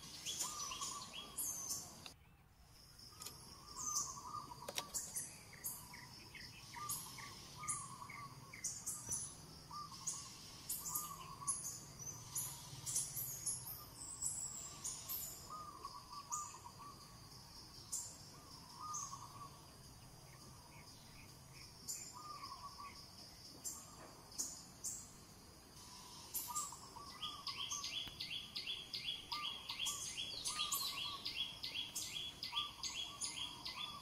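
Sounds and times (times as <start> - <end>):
bird warbling call: 0.0 - 1.9, 3.6 - 5.9, 6.6 - 17.0, 25.8 - 34.0
high bird chirps: 0.0 - 2.1, 25.8 - 34.0.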